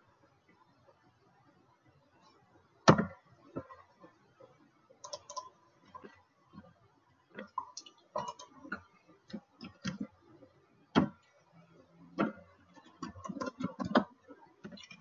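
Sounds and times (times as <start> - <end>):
keyboard and mouse clicks: 5.0 - 5.5, 12.2 - 15.0.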